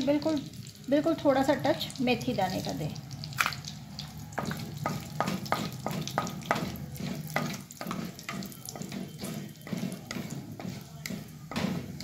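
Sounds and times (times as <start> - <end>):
seeds sizzling in hot oil: 0.0 - 12.0
wooden spatula stirring: 4.0 - 12.0.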